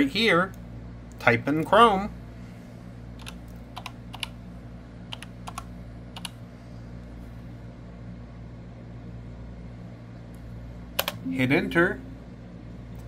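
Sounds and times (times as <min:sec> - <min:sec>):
steady low hum: 0:00.0 - 0:13.0
keyboard keystroke clicks: 0:03.2 - 0:04.3, 0:11.0 - 0:11.2.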